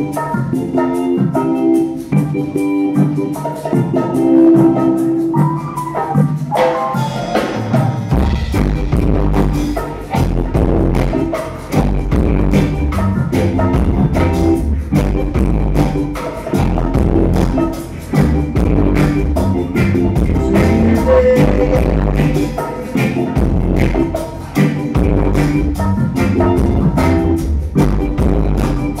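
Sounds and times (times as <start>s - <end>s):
keyboard and guitar chords: 0.0s - 29.0s
drum beat: 5.8s - 29.0s
deep electric bass line: 8.1s - 29.0s.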